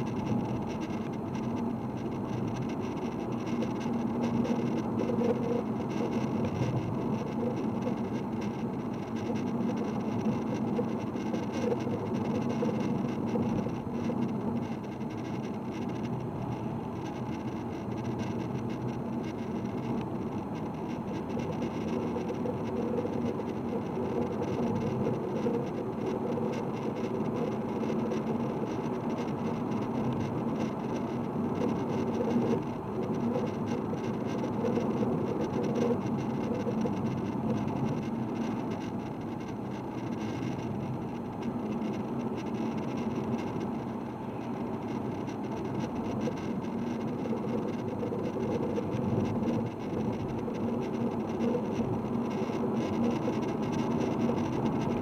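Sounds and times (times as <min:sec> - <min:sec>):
car engine and road noise: 0:00.0 - 0:55.0.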